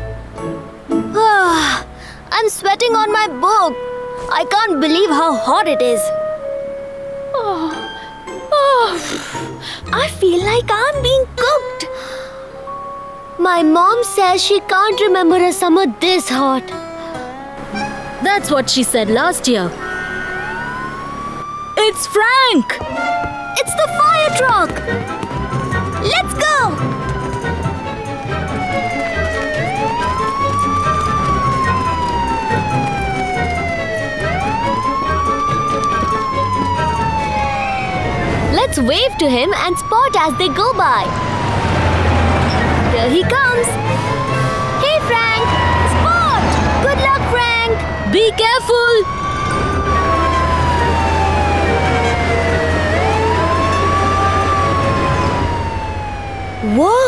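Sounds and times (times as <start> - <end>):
fire truck siren wailing: 16.7 - 57.0.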